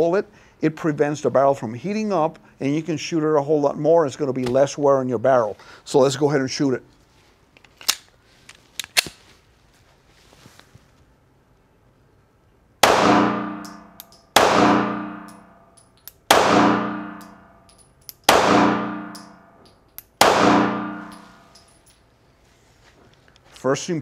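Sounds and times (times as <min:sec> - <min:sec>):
pistol shots with ringing decay: 0:12.8 - 0:15.4, 0:16.3 - 0:17.5, 0:18.3 - 0:19.4, 0:20.2 - 0:21.4.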